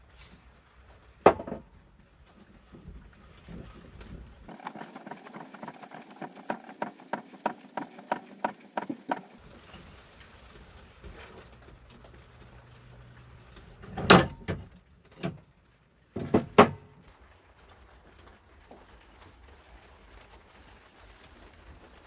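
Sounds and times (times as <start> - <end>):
sprinkler mechanism clicking: 4.5 - 9.4.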